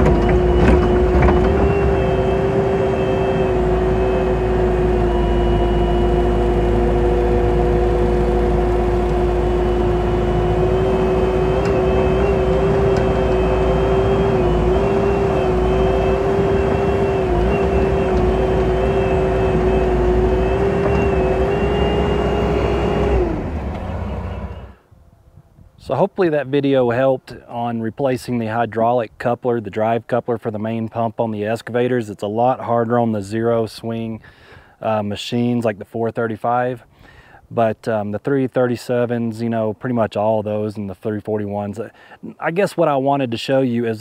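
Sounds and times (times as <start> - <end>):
diesel engine running: 0.0 - 24.8
high hydraulic whine: 0.0 - 24.8.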